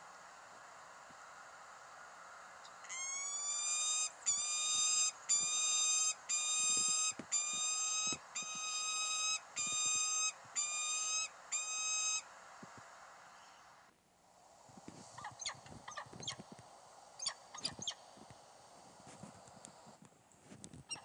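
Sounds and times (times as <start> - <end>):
falcon whining calls: 2.6 - 12.3, 15.2 - 16.4, 17.2 - 18.1.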